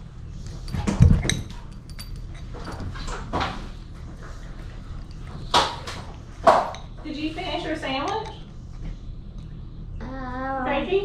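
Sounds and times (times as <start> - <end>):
light metallic clinks: 0.6 - 2.9.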